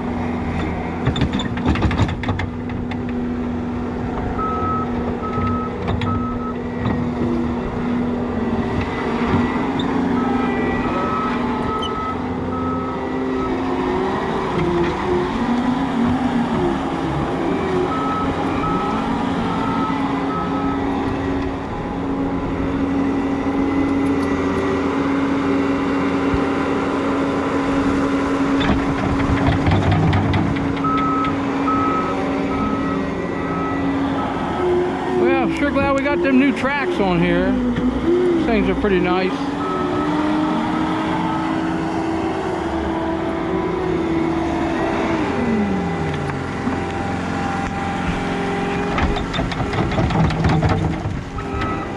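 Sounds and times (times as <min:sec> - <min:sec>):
diesel engine running: 0:00.0 - 0:51.9
reversing alarm beeping: 0:04.4 - 0:06.7, 0:09.5 - 0:13.7, 0:17.5 - 0:21.0, 0:30.8 - 0:36.8, 0:39.5 - 0:40.4.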